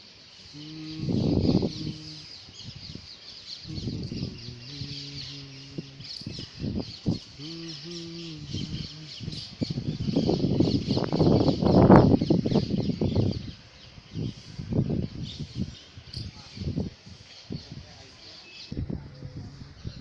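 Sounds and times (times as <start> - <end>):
small birds chirping: 0.2 - 20.0
low steady pitched tone: 0.5 - 2.4, 3.7 - 12.2.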